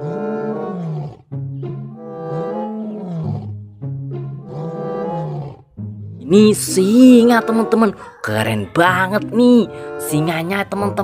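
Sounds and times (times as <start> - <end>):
lion roaring: 0.0 - 6.3.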